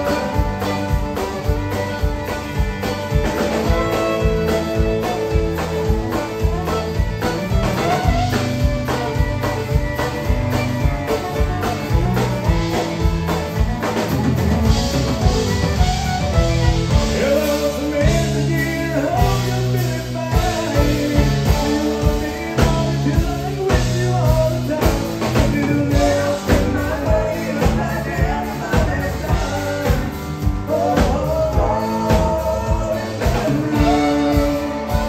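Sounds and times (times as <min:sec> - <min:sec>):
man singing lead vocal: 0:00.0 - 0:01.1, 0:16.8 - 0:35.0
acoustic guitar: 0:00.0 - 0:35.0
drum kit: 0:00.0 - 0:35.0
electric bass: 0:00.0 - 0:35.0
fiddle: 0:00.0 - 0:35.0.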